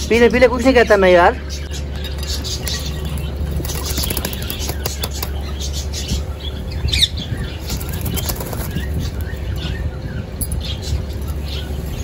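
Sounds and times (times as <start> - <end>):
steady low rumble: 0.0 - 12.0
pigeons flapping wings: 3.5 - 5.4, 7.6 - 9.0.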